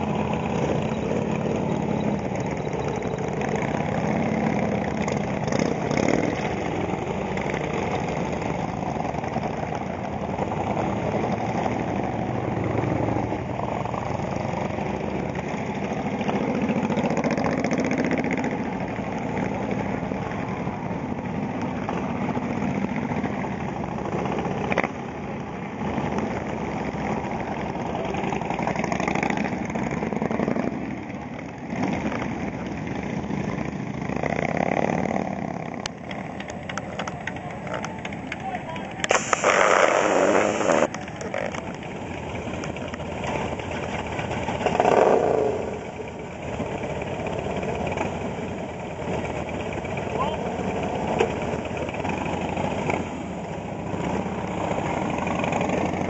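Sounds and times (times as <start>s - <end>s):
motorcycle engines idling and pulling away: 0.0s - 56.0s.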